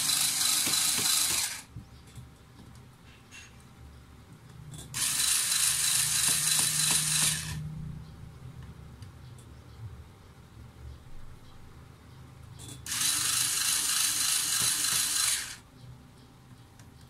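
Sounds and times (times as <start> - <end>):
electric screwdriver running: 0.0 - 1.7, 5.0 - 7.6, 12.9 - 15.6.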